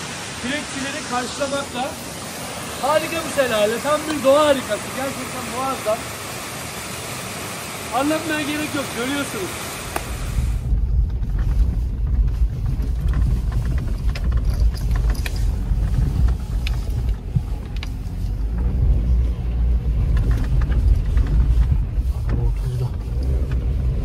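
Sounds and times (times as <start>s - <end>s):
engine and tyres rumbling: 0.0s - 24.0s
knocks and clicks over ruts: 9.9s - 24.0s.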